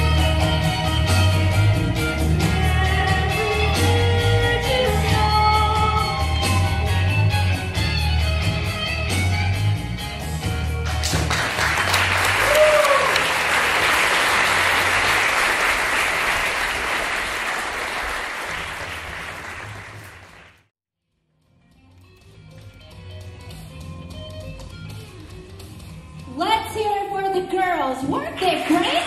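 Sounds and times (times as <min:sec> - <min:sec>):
guitar-backed song: 0:00.0 - 0:11.3
audience applauding: 0:10.8 - 0:20.7, 0:28.2 - 0:29.0.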